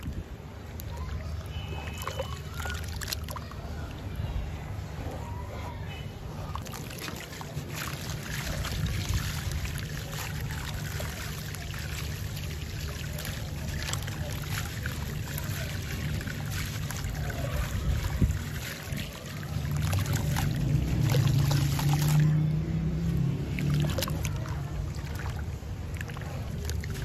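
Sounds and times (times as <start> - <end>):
grit splashing into water: 0.0 - 4.1, 6.4 - 27.0.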